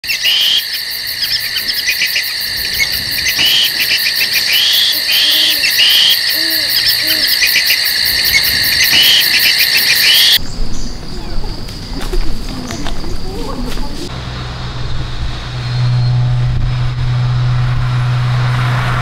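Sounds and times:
low hooting calls: 0.0s - 10.4s
insect chorus: 0.0s - 14.1s.

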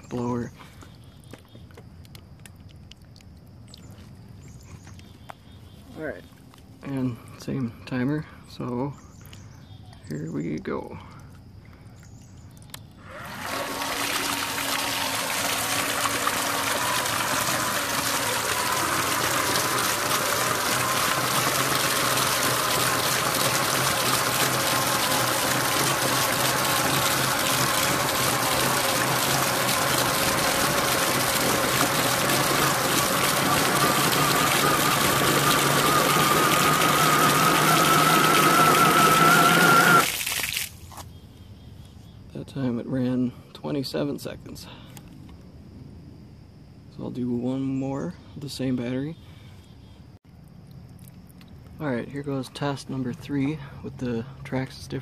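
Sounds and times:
electric motor whine: 13.0s - 40.1s
water jetting and splashing on concrete: 13.3s - 40.9s.

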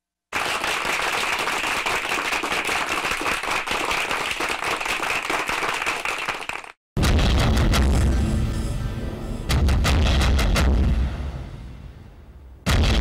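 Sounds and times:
crowd clapping: 0.3s - 6.8s.

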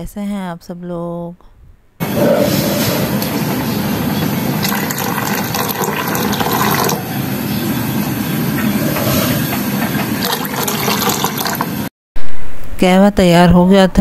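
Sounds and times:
tea bubbling: 2.9s - 7.1s, 10.0s - 11.8s
milk pouring into a saucepan: 4.6s - 7.0s, 10.2s - 11.7s.

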